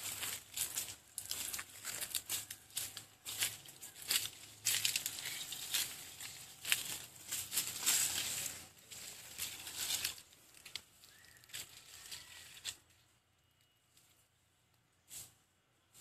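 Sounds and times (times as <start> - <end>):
footsteps crunching dry leaves: 0.0 - 12.8.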